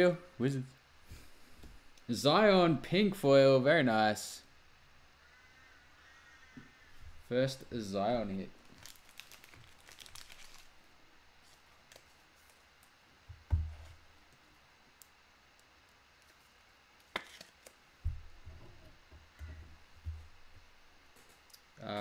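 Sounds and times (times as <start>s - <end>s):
trading cards being handled: 8.6s - 10.8s.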